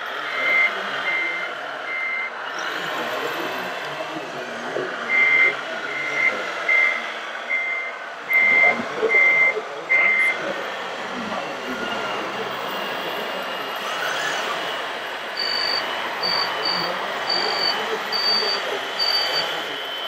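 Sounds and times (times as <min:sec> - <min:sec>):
steady background noise: 0:00.0 - 0:20.0
electronic reversing beeper: 0:00.3 - 0:10.5, 0:11.1 - 0:20.0
higher-pitched reversing beeper: 0:11.1 - 0:20.0.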